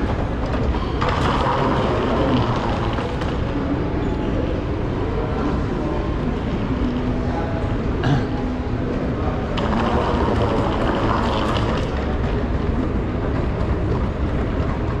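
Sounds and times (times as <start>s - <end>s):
moving walkway rumble and whirr: 0.0s - 15.0s.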